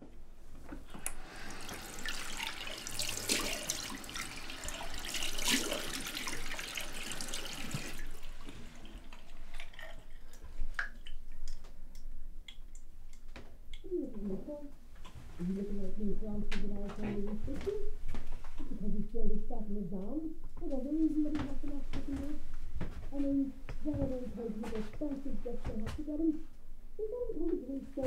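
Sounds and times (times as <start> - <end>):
tap running into sink: 0.9 - 9.2
water drips and splashes: 1.4 - 13.3.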